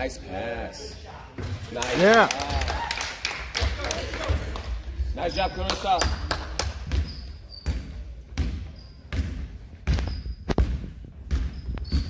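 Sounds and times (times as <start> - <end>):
sneakers squeaking on floor: 5.2 - 12.0
basketball bouncing on wooden floor: 6.6 - 12.0.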